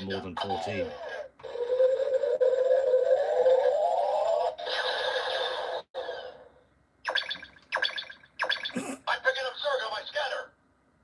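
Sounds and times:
toy rising electronic whine: 0.5s - 6.5s, 7.1s - 8.8s.

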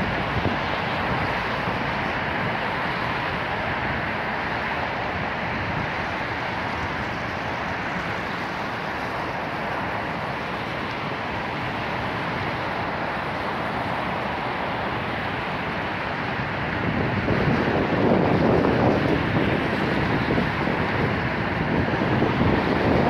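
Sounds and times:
wind gust buffeting microphone: 0.0s - 23.0s
wind noise: 0.0s - 23.0s.

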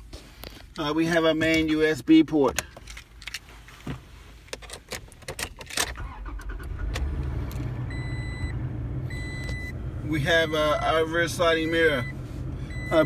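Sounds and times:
car engine starting and idling: 4.7s - 13.0s.

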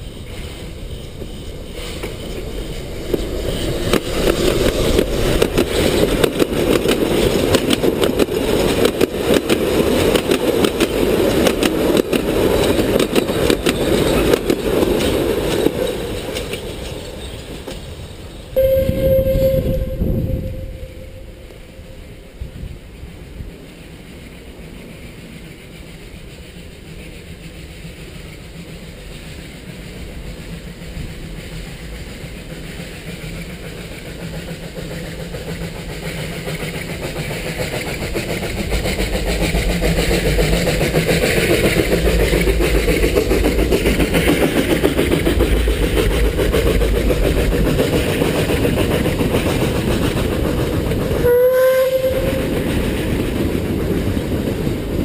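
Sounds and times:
wagons rolling over rails: 0.0s - 18.5s, 31.5s - 55.0s
steam locomotive working: 0.0s - 55.0s
steam whistle blast: 18.6s - 22.4s, 51.2s - 52.6s.

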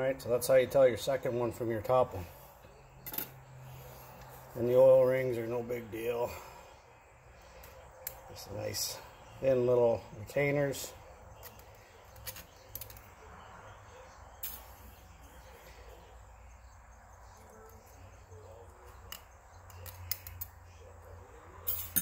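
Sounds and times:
steel rings clicking and scraping: 21.6s - 22.0s.

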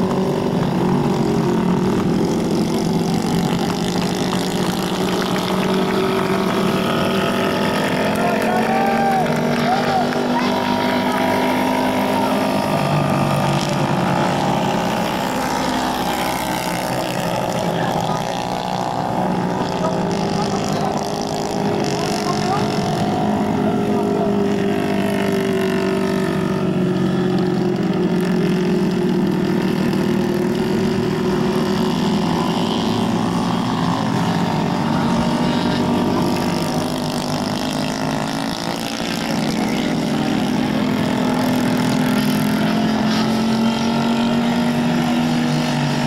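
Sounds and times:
kart engines running: 0.0s - 46.0s.

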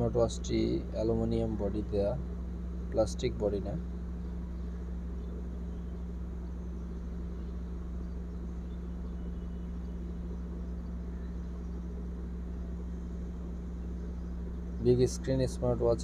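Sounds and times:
low hum: 0.0s - 16.0s.

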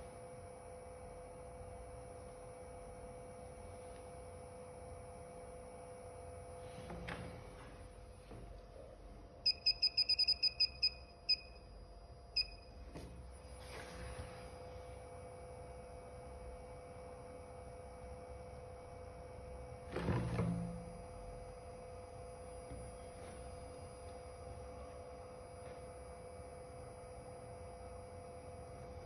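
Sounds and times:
faint steady hum: 0.0s - 29.0s
short high beeps: 9.5s - 11.6s.

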